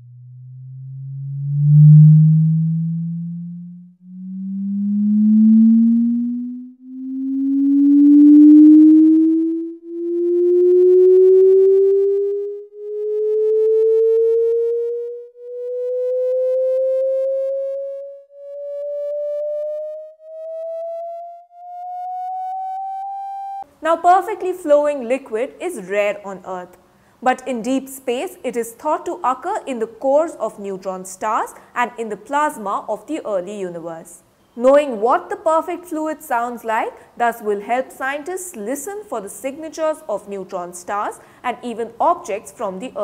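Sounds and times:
electronic tones climbing in pitch: 0:00.0 - 0:23.7.

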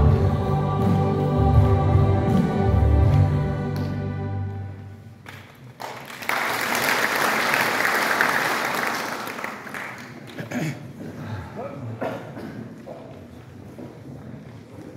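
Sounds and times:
choir singing chord: 0:00.0 - 0:04.9
congregation applauding: 0:05.2 - 0:10.6.

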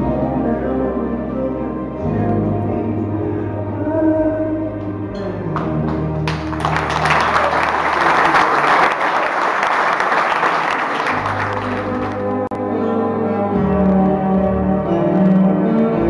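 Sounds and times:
music playing: 0:00.0 - 0:16.0
audience applauding: 0:05.8 - 0:12.4.

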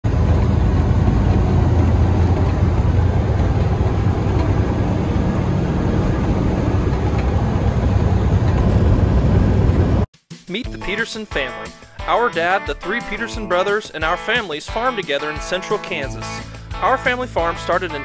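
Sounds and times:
truck engine and road noise: 0:00.0 - 0:10.1.

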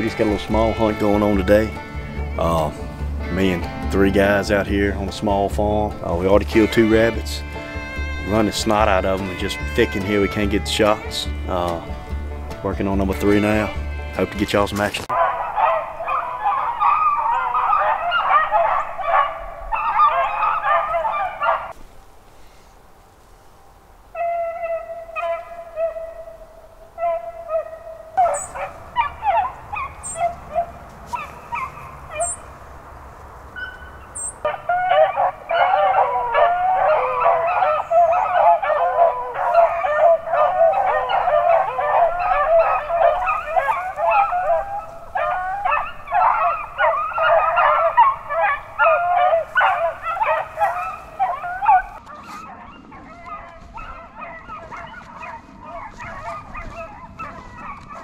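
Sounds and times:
beagles baying: 0:00.0 - 0:21.8, 0:24.0 - 0:58.0.

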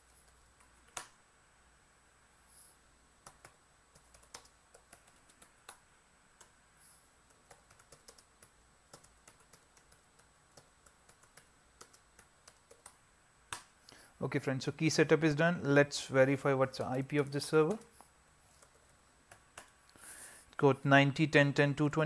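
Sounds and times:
faint keyboard typing: 0:00.0 - 0:01.2, 0:03.2 - 0:14.0, 0:16.3 - 0:20.6.

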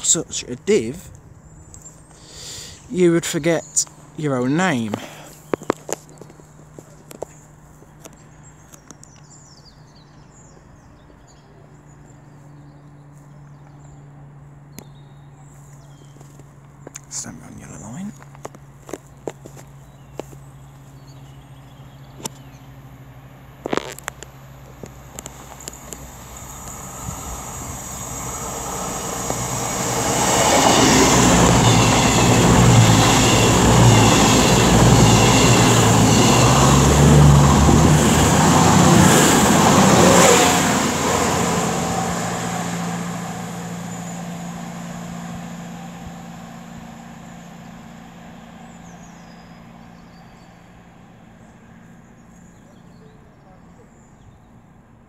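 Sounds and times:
train passing at speed: 0:24.4 - 0:52.8.

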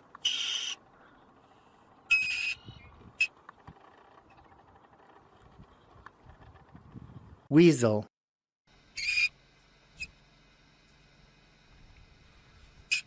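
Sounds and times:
weasel squealing: 0:00.2 - 0:00.8, 0:02.1 - 0:03.3, 0:09.0 - 0:09.3.

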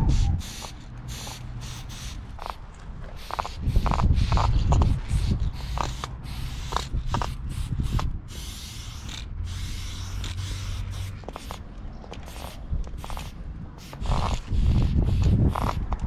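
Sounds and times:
spray paint can hissing: 0:00.0 - 0:16.0.

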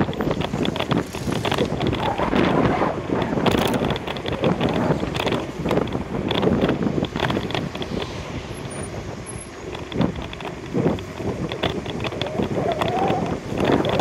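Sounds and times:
bicycle clicks and knocks: 0:00.0 - 0:14.0
wind buffeting microphone: 0:00.0 - 0:14.0.

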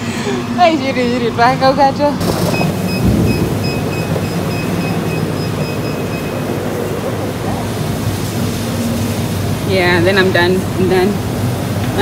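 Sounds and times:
treadmill motor and belt rumble: 0:00.0 - 0:12.0
short console beeps: 0:02.4 - 0:06.4.

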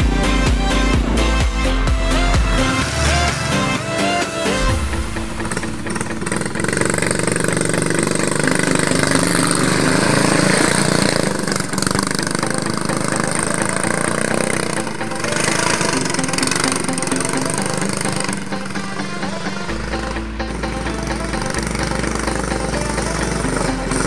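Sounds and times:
go-kart engine running: 0:00.0 - 0:24.0.

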